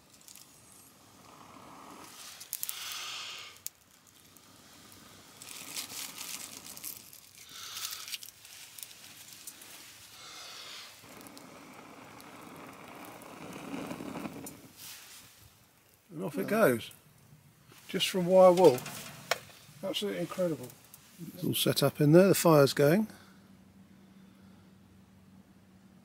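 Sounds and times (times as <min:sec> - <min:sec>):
dry leaves crinkling: 0:00.0 - 0:00.9, 0:02.1 - 0:16.8
person blowing long breaths: 0:01.1 - 0:08.3, 0:09.5 - 0:14.8.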